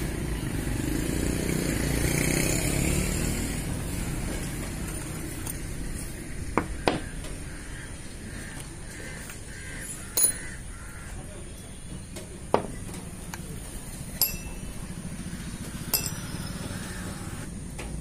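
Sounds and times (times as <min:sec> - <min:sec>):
metal parts clinking: 0:10.2 - 0:10.4, 0:15.9 - 0:16.3.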